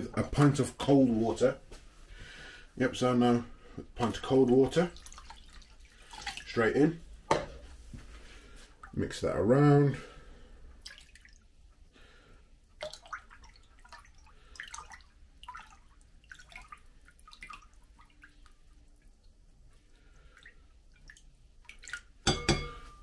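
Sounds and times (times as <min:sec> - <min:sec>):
liquid splashing: 0:04.0 - 0:07.0, 0:10.8 - 0:11.6, 0:12.6 - 0:22.8
spoon clinking in a bowl: 0:22.3 - 0:23.0.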